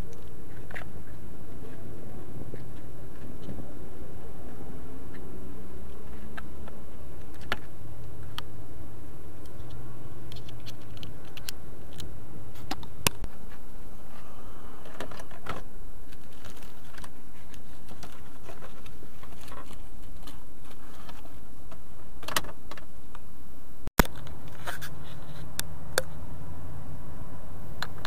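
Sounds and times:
low background rumble: 0.0 - 28.0.

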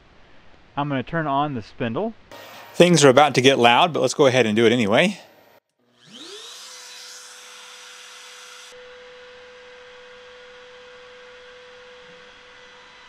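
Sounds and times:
router spindle motor whine: 5.8 - 13.0.

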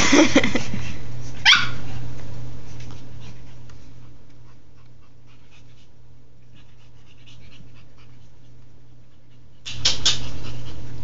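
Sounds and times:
puppy barking: 1.4 - 1.8
puppy yelping: 1.4 - 1.8.

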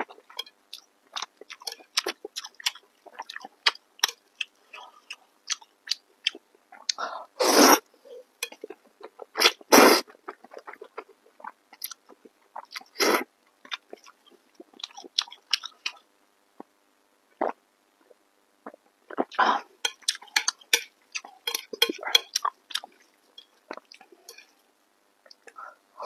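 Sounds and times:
loud noodle slurps: 7.4 - 7.8.

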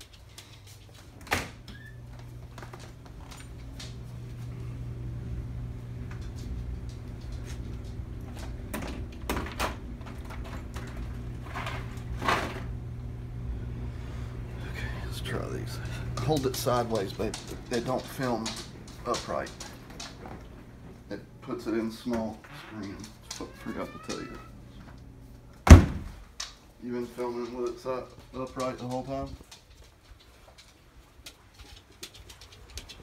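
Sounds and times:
steady low hum: 0.0 - 23.4.

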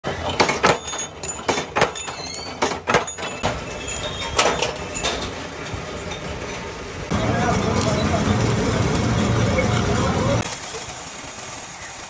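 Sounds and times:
sharp metallic knocks ringing: 0.3 - 5.3
machine running steadily: 2.7 - 12.0.

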